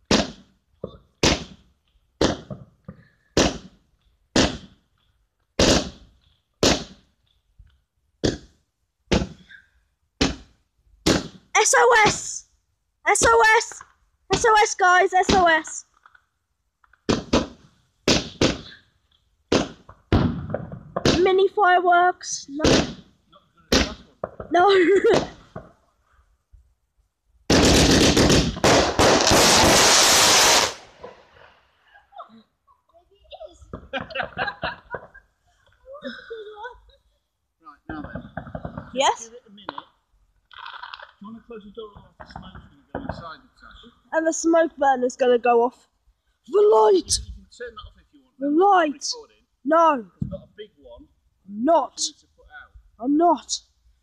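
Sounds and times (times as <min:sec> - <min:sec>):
fireworks bangs: 0:00.0 - 0:04.8, 0:05.6 - 0:07.1, 0:10.2 - 0:12.4, 0:17.0 - 0:18.8, 0:19.5 - 0:21.6, 0:22.3 - 0:25.8, 0:27.5 - 0:31.8, 0:33.6 - 0:35.2, 0:37.9 - 0:39.8, 0:41.8 - 0:43.9
firework crackling hiss: 0:27.5 - 0:31.8.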